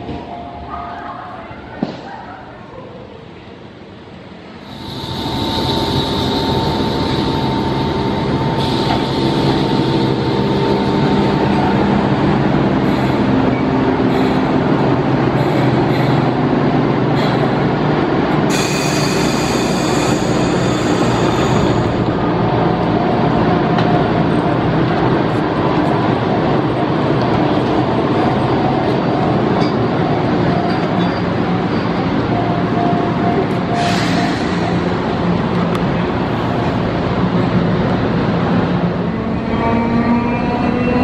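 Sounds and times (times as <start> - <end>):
train wheels and motors rumbling: 1.3 - 41.0
steady hum: 4.6 - 13.4.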